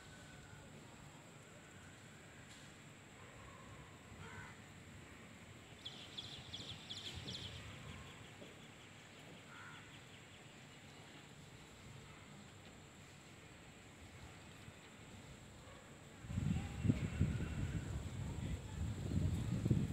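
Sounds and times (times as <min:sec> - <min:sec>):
faint short bird calls: 0:09.5 - 0:10.0.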